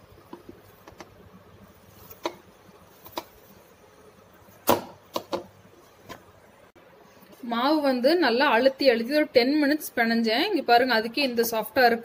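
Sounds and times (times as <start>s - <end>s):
dough slapping in a bowl: 1.8s - 3.6s, 4.6s - 6.3s.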